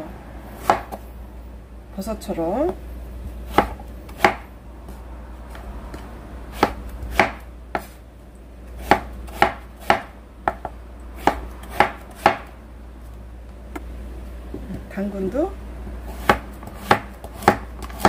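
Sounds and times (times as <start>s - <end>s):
knife chopping on wooden board: 0.6s - 1.0s, 3.5s - 4.5s, 6.5s - 8.0s, 8.8s - 12.5s, 16.1s - 18.0s.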